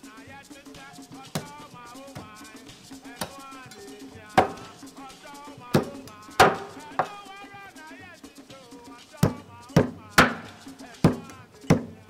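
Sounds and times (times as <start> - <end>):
background music with steady beat: 0.0 - 12.0
cleaver chopping on wooden board: 1.4 - 2.4, 3.1 - 3.4, 4.4 - 4.8, 5.8 - 7.2, 9.2 - 12.0.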